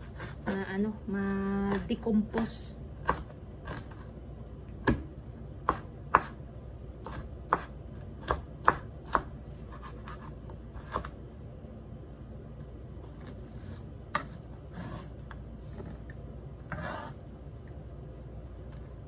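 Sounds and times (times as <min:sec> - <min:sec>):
knife chopping on plastic board: 0:01.6 - 0:04.0, 0:04.8 - 0:06.4, 0:07.0 - 0:11.2.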